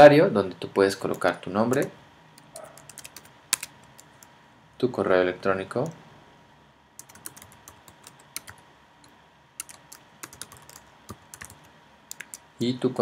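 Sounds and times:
keyboard typing: 1.0s - 4.3s, 7.0s - 8.6s, 9.6s - 12.5s.

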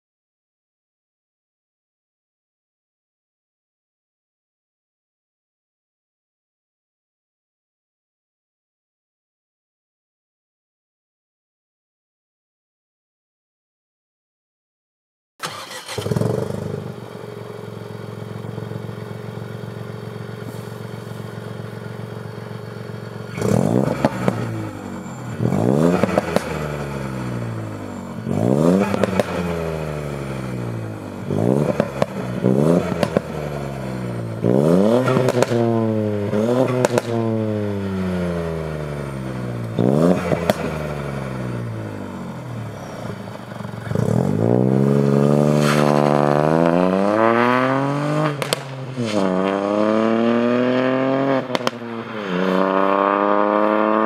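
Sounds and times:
car engine idling and revving: 15.4s - 54.0s
exhaust crackles and pops: 28.8s - 29.4s, 32.8s - 33.3s, 35.0s - 35.6s, 36.7s - 37.2s, 48.3s - 49.2s, 51.5s - 51.8s.

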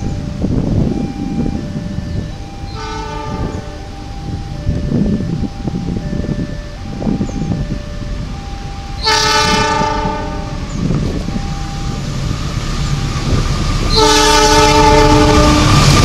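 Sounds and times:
locomotive rumble: 0.0s - 16.0s
locomotive air horn blasts: 2.7s - 7.1s, 8.8s - 12.0s, 13.8s - 16.0s.

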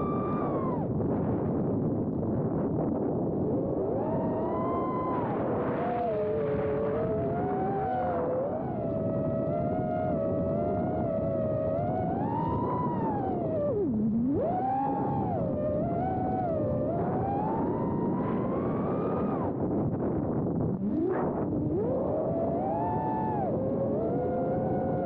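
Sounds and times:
wind on microphone: 0.0s - 25.0s.

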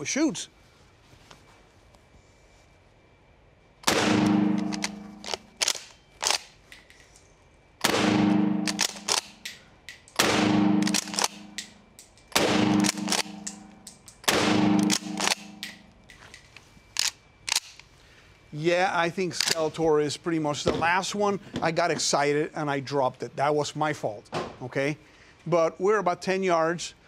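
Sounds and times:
shotgun shots: 3.8s - 5.8s, 7.8s - 9.4s, 10.2s - 11.6s, 12.3s - 15.8s
shotgun pump racking clacks: 4.6s - 6.9s, 10.8s - 12.2s, 12.8s - 14.2s.

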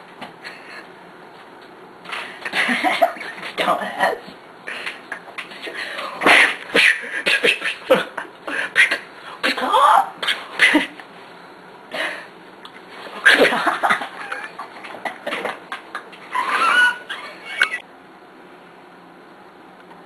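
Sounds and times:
boy making beatbox mouth noises: 6.4s - 7.9s, 8.7s - 9.1s.

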